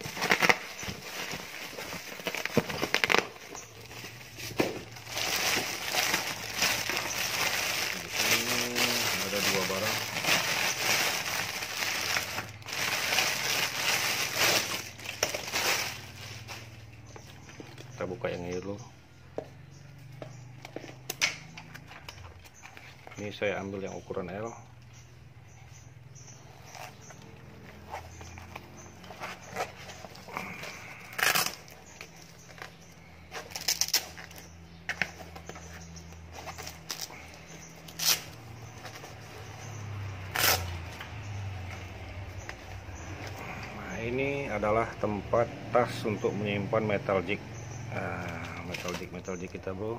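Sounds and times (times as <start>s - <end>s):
plastic bag crinkling: 0.0s - 16.9s.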